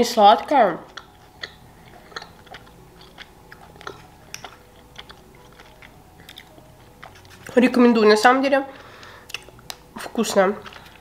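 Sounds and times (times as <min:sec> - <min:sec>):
chewing with wet clicks: 0:00.4 - 0:07.5, 0:09.2 - 0:11.0.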